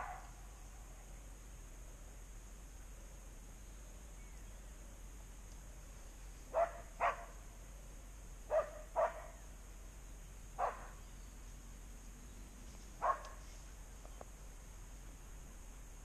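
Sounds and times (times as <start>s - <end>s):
dog barking: 0.0s - 0.3s, 6.5s - 7.4s, 8.5s - 9.4s, 10.6s - 11.0s, 13.0s - 13.4s.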